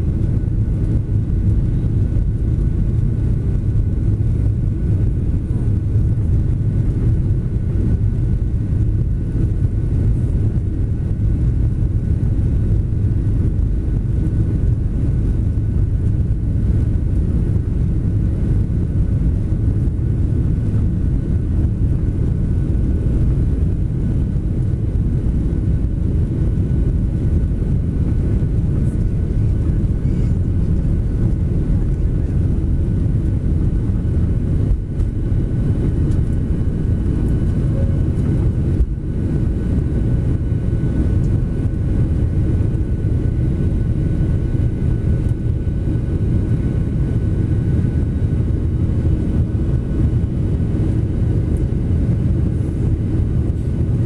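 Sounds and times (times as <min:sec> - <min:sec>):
jet engines low rumble: 0:00.0 - 0:54.0
faint high whine: 0:36.9 - 0:39.2.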